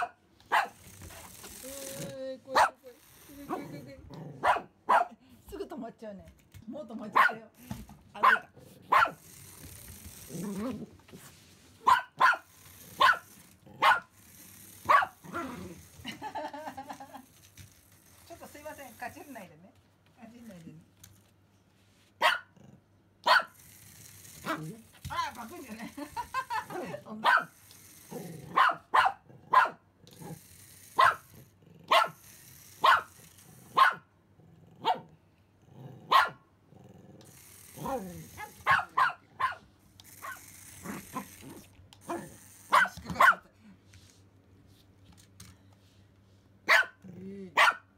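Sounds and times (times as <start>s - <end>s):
small dog yapping: 8.2s - 9.2s, 11.8s - 13.2s, 14.9s - 15.2s, 22.2s - 22.5s, 23.2s - 23.6s, 27.2s - 27.5s, 28.5s - 29.8s, 31.0s - 31.2s, 31.9s - 32.2s, 32.8s - 33.1s, 33.7s - 34.0s, 36.1s - 36.4s, 38.4s - 39.6s, 42.1s - 43.4s, 46.7s - 47.0s, 47.6s - 47.8s.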